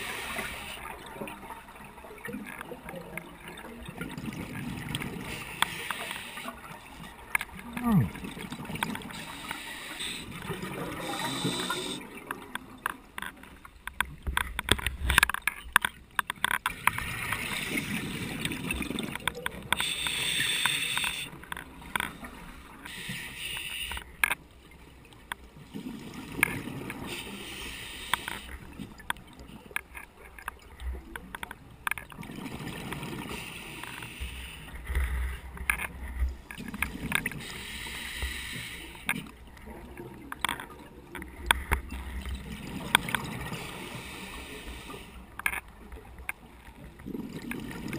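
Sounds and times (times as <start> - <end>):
gurgling exhaled bubbles: 7.6 - 9.4, 10.0 - 12.5, 46.9 - 47.9
regulator hissing inhalations: 9.2 - 10.4, 11.0 - 12.0, 19.8 - 21.3, 22.9 - 24.0, 27.1 - 28.5, 37.4 - 39.1, 43.6 - 45.2.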